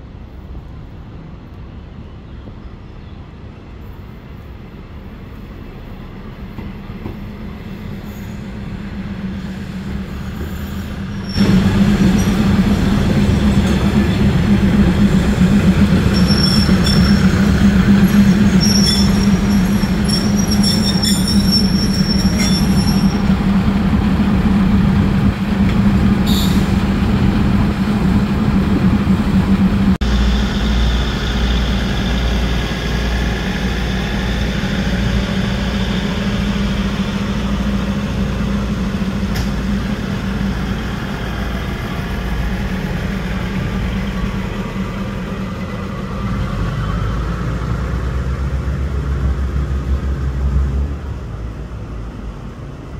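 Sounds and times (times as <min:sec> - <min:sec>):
diesel railcar engine drone: 0:00.0 - 0:52.9
train wheels squealing: 0:06.7 - 0:08.7, 0:09.4 - 0:12.6, 0:15.3 - 0:23.4, 0:26.2 - 0:26.8.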